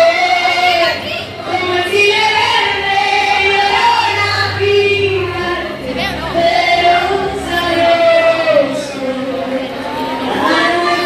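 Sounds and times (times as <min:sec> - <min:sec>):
crowd singing along: 0:00.0 - 0:11.0
woman singing through microphone: 0:00.0 - 0:11.0.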